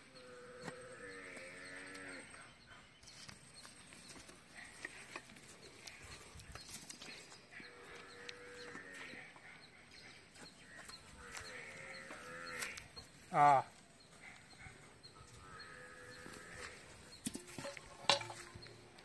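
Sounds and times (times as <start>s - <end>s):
farm animal bleating: 7.6s - 9.3s, 11.1s - 13.7s.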